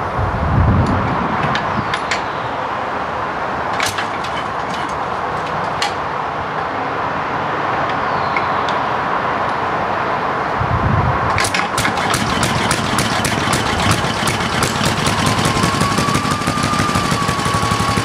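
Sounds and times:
steady background noise: 0.0 - 18.0
crank handle clicks and clanks: 3.7 - 6.0, 11.3 - 15.3.

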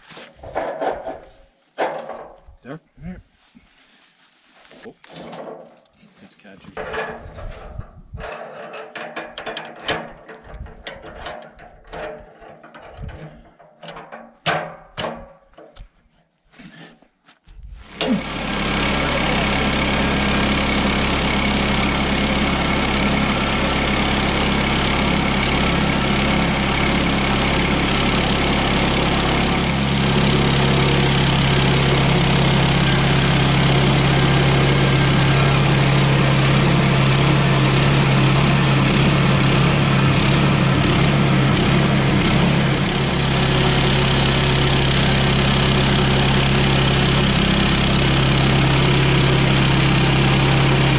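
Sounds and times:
log knocking and clanking: 0.4 - 2.5, 5.0 - 5.9, 6.8 - 16.0
sawmill engine running: 17.8 - 50.9.

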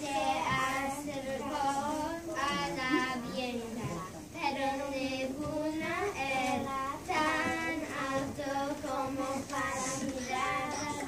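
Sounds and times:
children singing: 0.0 - 11.0.

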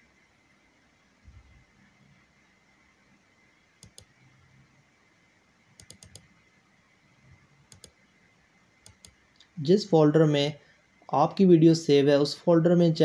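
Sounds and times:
faint computer mouse clicks: 3.8 - 4.1, 5.8 - 6.3, 7.7 - 8.0, 8.8 - 9.5.

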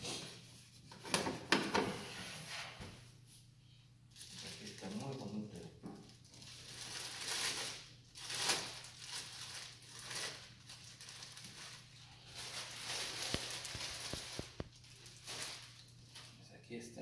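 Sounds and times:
bubble wrap rustling: 4.1 - 16.5.

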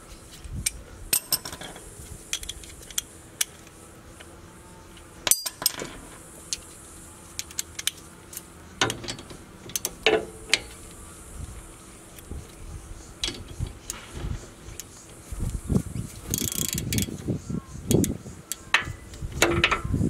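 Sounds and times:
metal hand tools clinking: 5.2 - 6.0
sharp metal clank: 5.3 - 6.0
ratchet wrench clicking: 7.4 - 8.0, 8.8 - 11.0, 16.3 - 17.2, 17.9 - 19.9.

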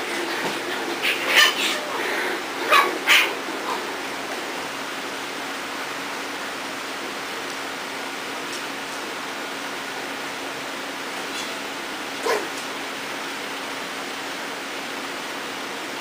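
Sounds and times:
puppies yipping and barking: 0.1 - 4.3.

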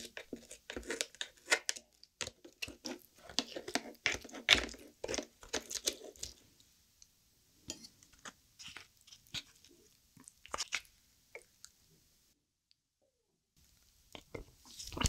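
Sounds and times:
wooden spoon scraping shell: 0.0 - 1.8
chopsticks mixing wet rice: 0.0 - 6.4, 7.7 - 10.9.

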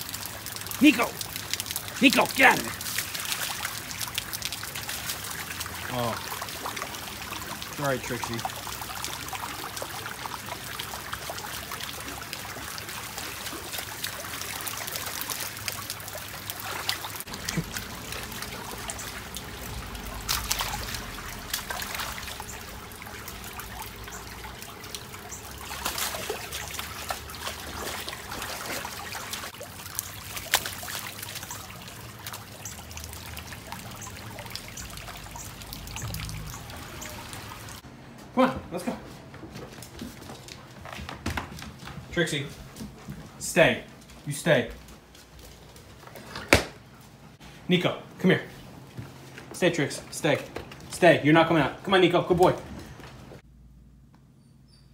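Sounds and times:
dog splashing through water: 0.0 - 37.8
floodwater trickling: 0.0 - 37.9.

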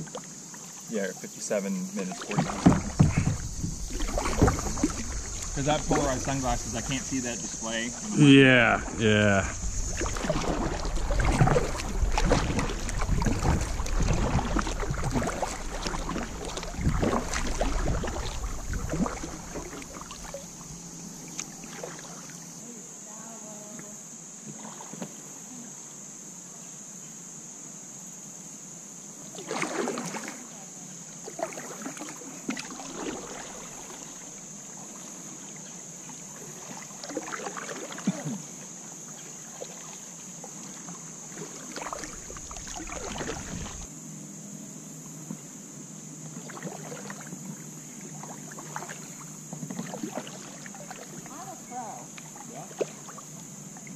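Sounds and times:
steady high hiss: 0.0 - 14.0, 14.7 - 24.4
paddle strokes splashing: 0.0 - 22.6, 24.5 - 25.2, 29.3 - 30.5, 31.2 - 43.9, 46.3 - 53.9
water sloshing against hull: 0.0 - 22.8, 23.6 - 25.4, 29.2 - 43.9, 45.1 - 53.9
wind rumbling on microphone: 2.7 - 20.2, 42.1 - 43.9.

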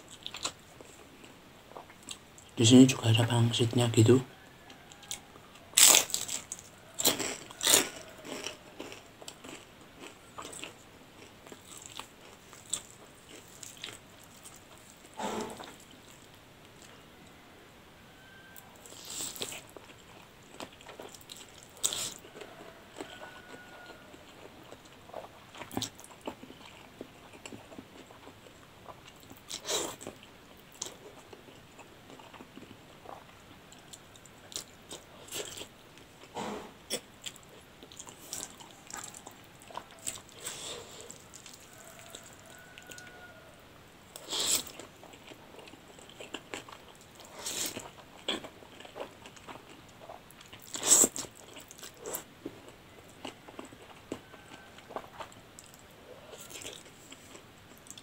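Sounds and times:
crunchy bites: 4.9 - 16.9, 44.1 - 52.3
chewing clicks and mouth smacks: 36.9 - 42.4.

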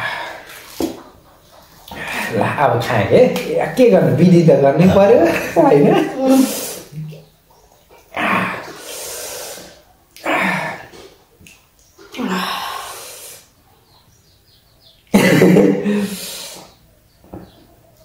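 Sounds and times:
person laughing breathily: 15.2 - 16.3.

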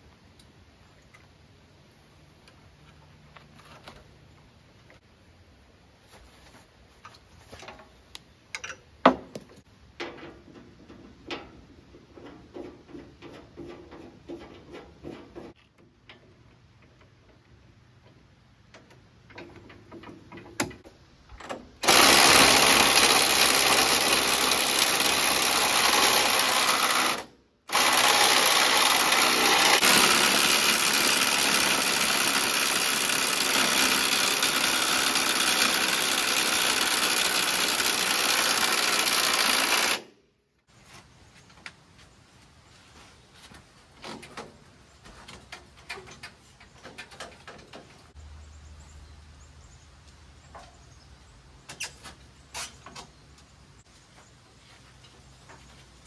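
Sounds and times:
motor-driven tool whirring: 21.8 - 40.1.

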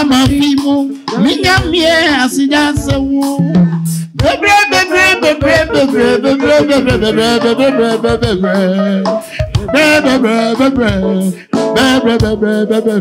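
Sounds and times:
held instrumental notes: 0.0 - 13.0
person singing: 0.0 - 13.0.

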